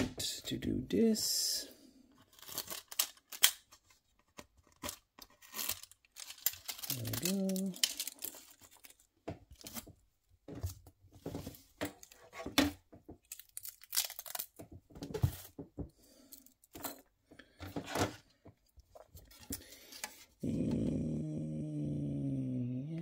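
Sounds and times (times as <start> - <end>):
plastic parts clicking: 2.4 - 5.0, 5.7 - 9.0.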